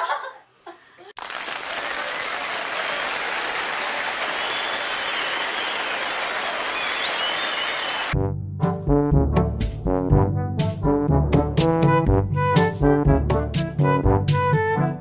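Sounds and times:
crowd clapping and cheering: 1.2 - 8.2
high whistles: 4.3 - 8.2.

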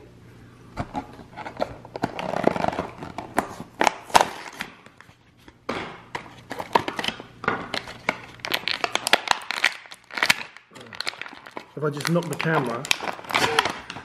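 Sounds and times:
plastic blister crinkling: 6.4 - 14.0.

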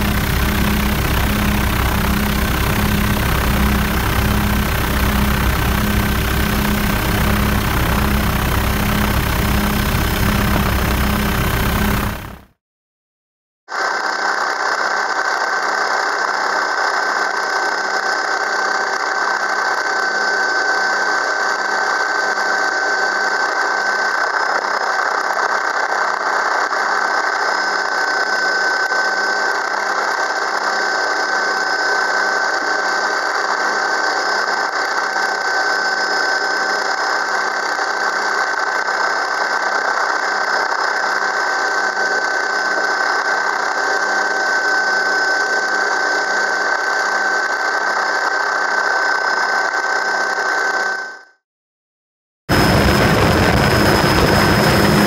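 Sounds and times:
rushing drone: 0.0 - 12.5, 52.5 - 55.0
helicopter engine whine: 0.0 - 12.6, 13.7 - 51.4, 52.5 - 55.0.

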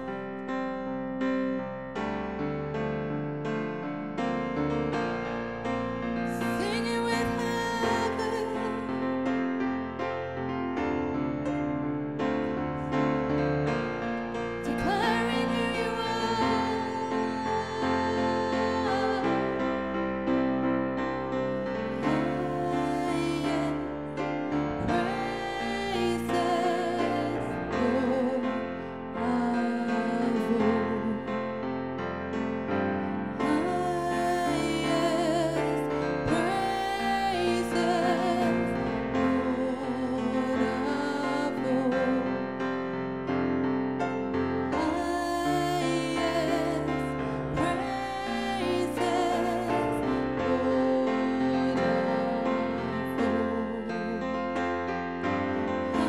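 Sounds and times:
electronic keyboard piano chords: 0.0 - 56.0
woman singing with vibrato: 6.3 - 8.9, 14.6 - 19.6, 22.0 - 24.2, 24.8 - 28.6, 29.2 - 31.2, 33.4 - 42.2, 44.8 - 54.2.

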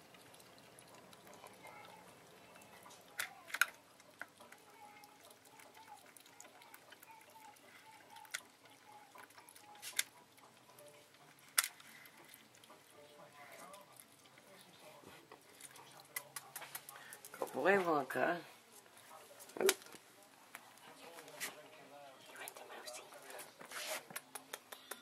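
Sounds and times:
ferret lapping water: 0.0 - 25.0.

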